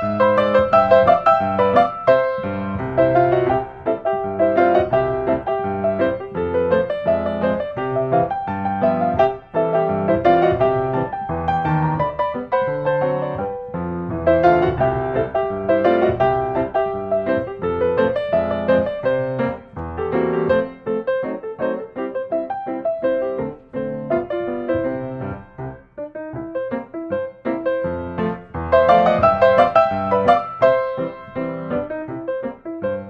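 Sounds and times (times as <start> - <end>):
piano music: 0.0 - 33.0.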